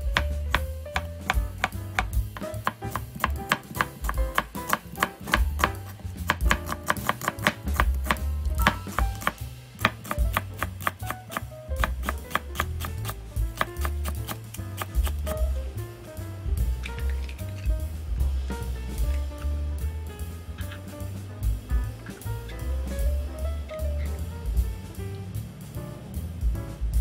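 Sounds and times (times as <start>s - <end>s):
knife chopping on cutting board: 0.0s - 15.5s.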